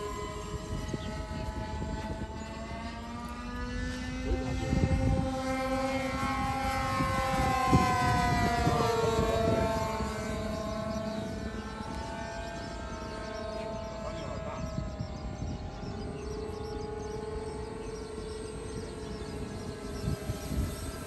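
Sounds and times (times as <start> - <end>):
model plane engines and propellers: 0.0 - 21.0
wind noise thumps: 18.8 - 21.0.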